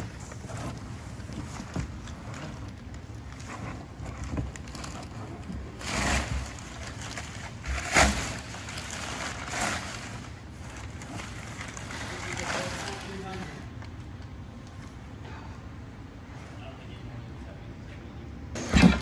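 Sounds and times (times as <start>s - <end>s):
packing paper rustling: 0.0s - 13.9s.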